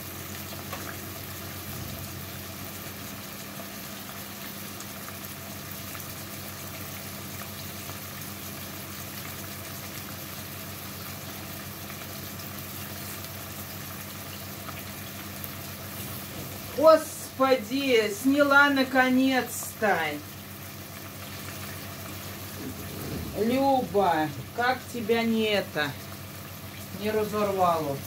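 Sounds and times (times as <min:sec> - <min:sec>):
food hissing on stove: 0:00.1 - 0:16.9, 0:20.2 - 0:23.8
low steady hum: 0:15.1 - 0:28.0.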